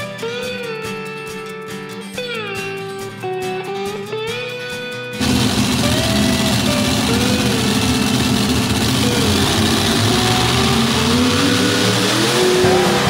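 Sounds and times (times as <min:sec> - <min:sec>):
tractor engines idling: 0:05.2 - 0:13.0.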